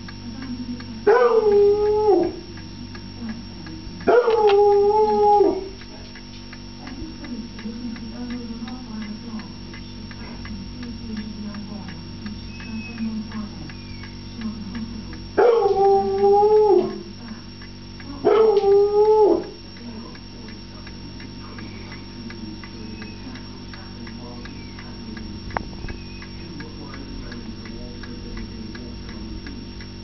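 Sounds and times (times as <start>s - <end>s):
hound howling: 1.1s - 2.4s, 4.1s - 5.8s, 15.4s - 17.1s, 18.2s - 19.6s.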